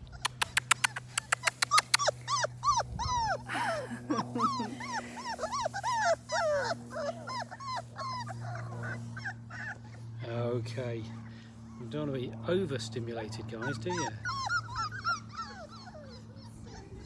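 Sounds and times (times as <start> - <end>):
puppies whining and yipping: 0.0 - 17.0
sharp clicks: 0.2 - 2.0.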